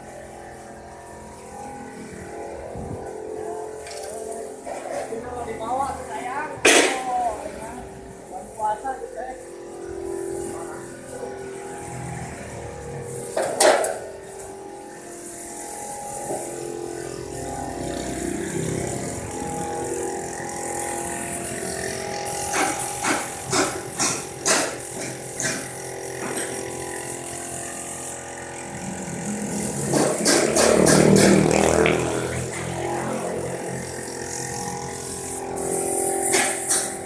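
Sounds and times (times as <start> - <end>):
machinery hum: 0.0 - 37.0
sharp metal knocks: 22.5 - 25.6, 29.9 - 31.4.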